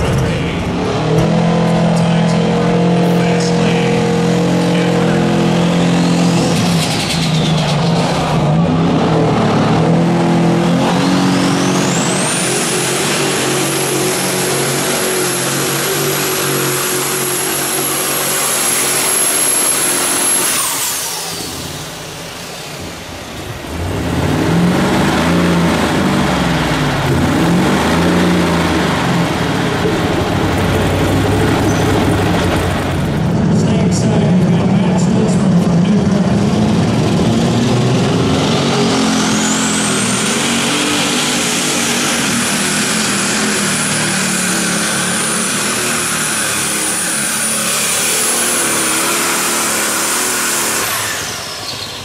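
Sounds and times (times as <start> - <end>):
tractor engine running under load: 25.2 - 52.0.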